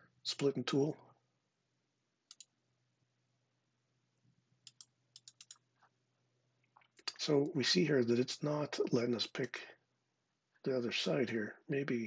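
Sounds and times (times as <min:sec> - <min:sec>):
faint computer mouse clicks: 0:02.3 - 0:02.5, 0:04.6 - 0:05.6.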